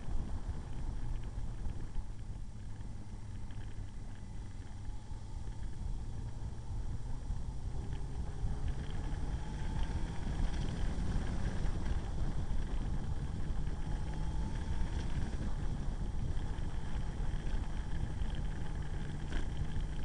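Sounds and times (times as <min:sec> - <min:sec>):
motorcycle engine drone: 0:00.0 - 0:20.0
wind buffeting the microphone: 0:03.9 - 0:20.0.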